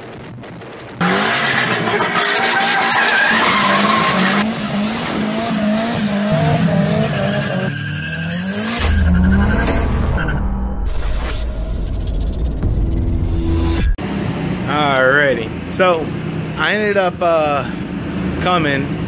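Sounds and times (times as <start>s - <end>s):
car engines revving: 0.1s - 11.0s, 13.4s - 19.0s
tires squealing: 1.0s - 10.6s.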